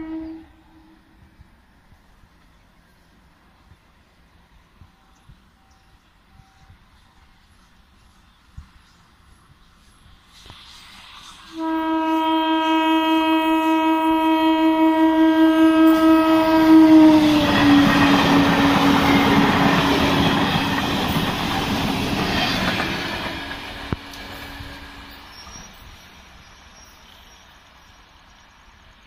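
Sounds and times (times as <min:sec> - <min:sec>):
train horn blast: 0:00.0 - 0:01.2, 0:11.5 - 0:20.6
train coaches clattering over rails: 0:17.3 - 0:26.2.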